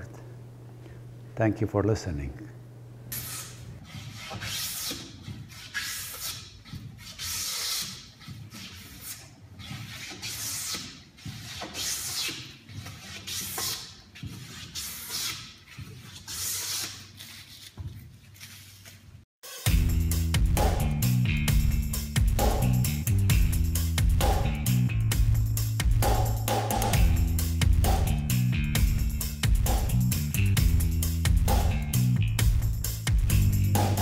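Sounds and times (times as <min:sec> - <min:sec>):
hand plane hissing strokes: 0:03.2 - 0:17.6.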